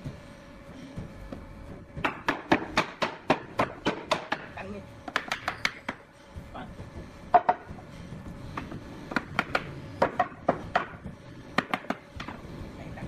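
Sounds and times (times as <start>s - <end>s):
hand tool striking wood: 2.0s - 4.5s, 8.6s - 12.4s.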